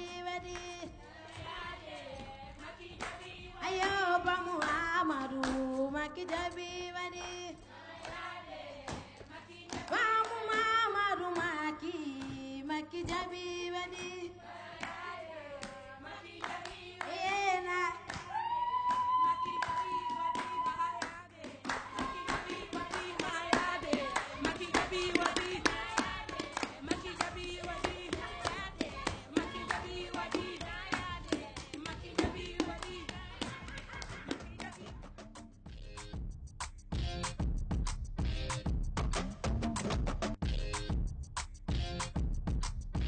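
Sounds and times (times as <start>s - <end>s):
rhythmic hand clapping: 0.0s - 13.3s, 14.8s - 35.6s
woman singing in a high voice: 2.7s - 7.6s, 9.4s - 14.4s, 17.0s - 33.7s.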